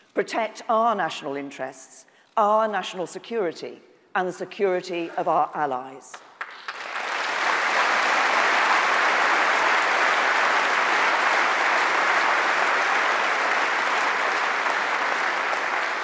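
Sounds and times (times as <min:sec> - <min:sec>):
audience applauding: 0:06.2 - 0:16.0.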